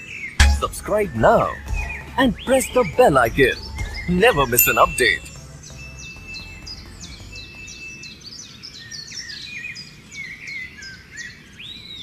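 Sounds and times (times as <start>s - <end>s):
birds chirping: 0.4s - 10.4s.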